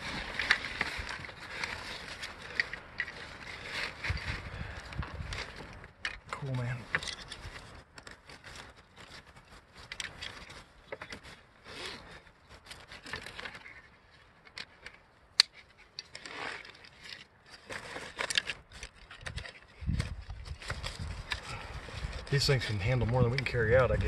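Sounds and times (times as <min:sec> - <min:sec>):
pack straps rustling: 0:00.0 - 0:23.4.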